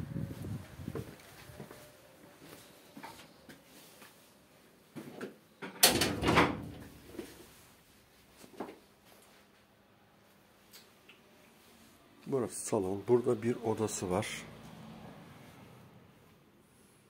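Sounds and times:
indoor knocks and clicks: 5.7 - 6.9.

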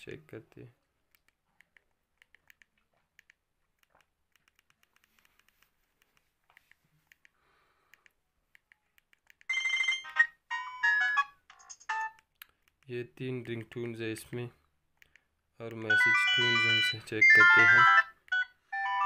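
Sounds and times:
electronic ringtone tune: 9.5 - 12.2, 15.9 - 19.0.

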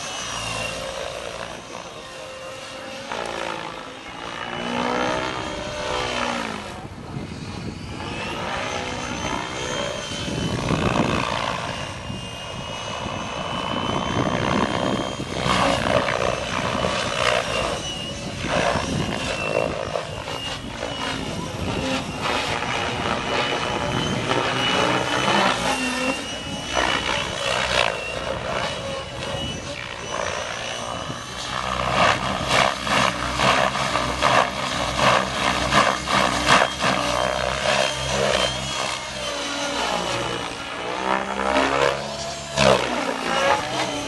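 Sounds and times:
electric motor whining: 0.0 - 44.0
helicopter rotor whooshing: 0.0 - 44.0.

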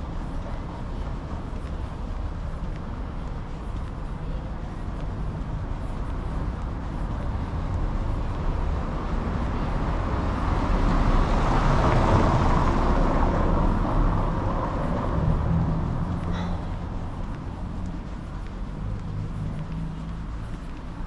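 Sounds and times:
low traffic rumble: 0.0 - 21.0.

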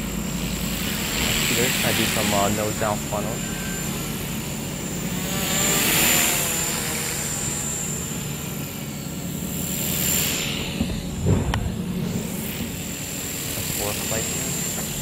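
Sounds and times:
high motor whine: 0.0 - 15.0
rotor whoosh: 0.0 - 15.0
short thump: 10.8 - 11.8.

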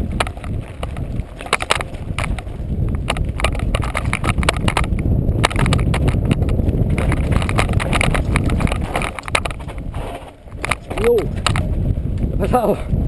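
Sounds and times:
tyres crunching over gravel: 0.0 - 12.6
bike rattling and knocking: 0.0 - 13.0
steady low rumble: 0.0 - 13.0.

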